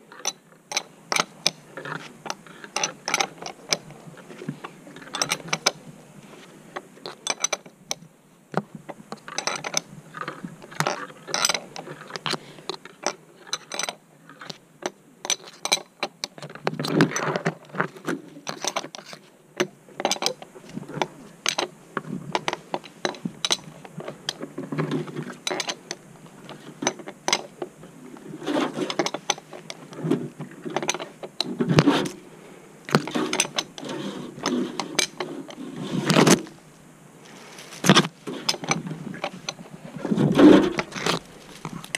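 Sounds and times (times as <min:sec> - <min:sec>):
metal fittings scraping and knocking: 0:00.2 - 0:05.8, 0:28.3 - 0:32.2, 0:32.9 - 0:36.5, 0:37.3 - 0:41.9.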